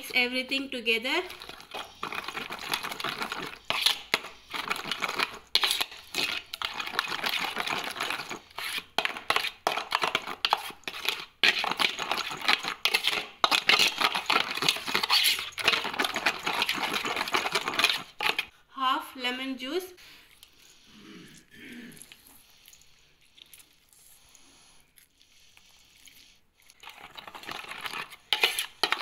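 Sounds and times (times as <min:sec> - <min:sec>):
spoon scraping metal bowl: 0:00.0 - 0:18.5, 0:26.7 - 0:29.0.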